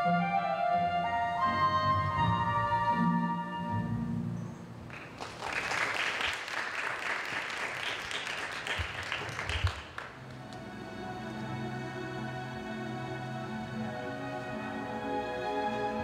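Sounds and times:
music: 0:00.0 - 0:04.9, 0:10.2 - 0:16.0
audience applauding: 0:04.9 - 0:10.6.

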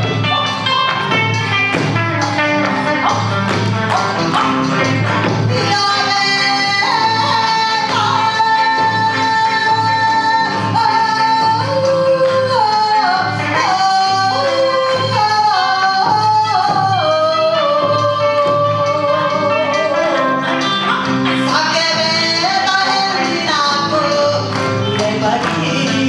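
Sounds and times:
woman singing into microphone: 0:05.3 - 0:26.0.

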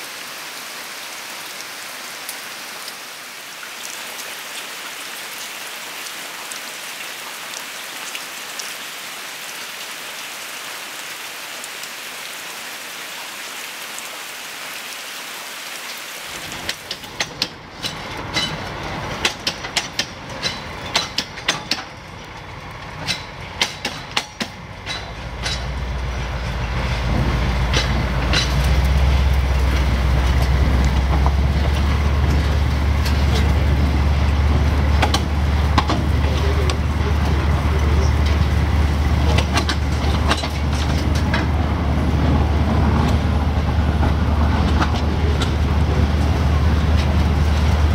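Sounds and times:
steady rain falling: 0:00.0 - 0:47.9
low engine drone: 0:16.4 - 0:47.9
rail wheels clacking over joints: 0:16.4 - 0:47.9.

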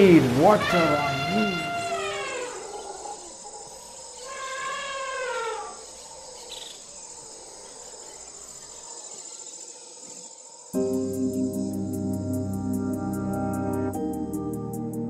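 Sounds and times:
crickets chirping: 0:00.0 - 0:15.0
drawn-out animal call: 0:00.4 - 0:05.8.

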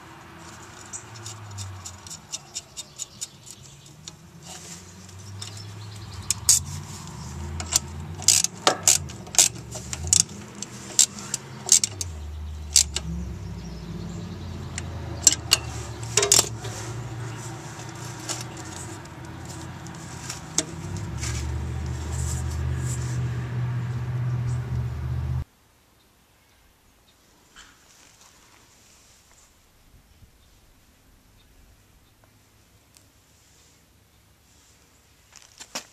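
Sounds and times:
metal tools clinking: 0:00.5 - 0:13.1, 0:14.7 - 0:22.8
low rumble: 0:12.1 - 0:25.4.

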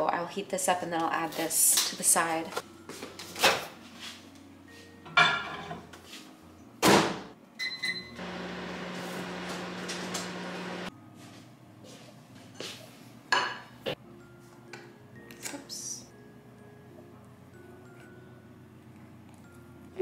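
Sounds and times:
microwave humming: 0:07.5 - 0:10.9.

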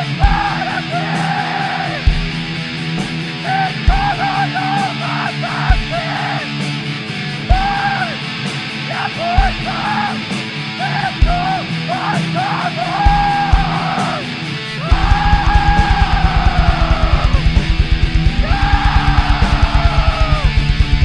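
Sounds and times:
fast double-bass drumming: 0:00.0 - 0:00.7, 0:02.0 - 0:04.2, 0:11.2 - 0:11.6, 0:13.0 - 0:13.9, 0:14.8 - 0:21.0
harsh yelled vocals: 0:00.0 - 0:02.2, 0:03.4 - 0:06.6, 0:07.4 - 0:21.0
distorted guitars: 0:00.0 - 0:21.0.

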